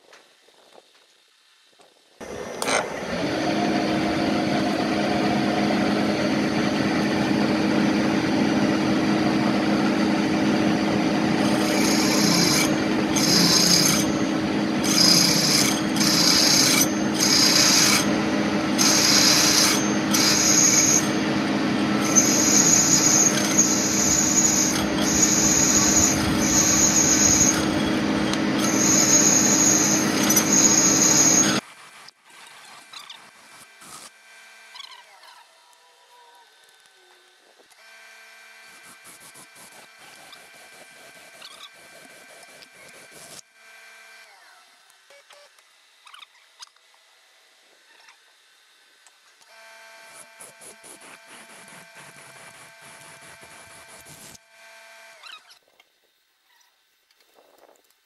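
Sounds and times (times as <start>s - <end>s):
drill cutting metal: 2.2s - 31.6s, 49.5s - 55.3s
milling machine spindle hum: 2.2s - 31.6s.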